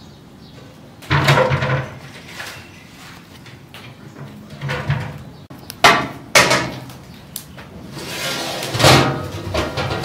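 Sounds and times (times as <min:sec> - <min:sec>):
scraping and clattering: 0:01.1 - 0:05.2, 0:07.9 - 0:10.0.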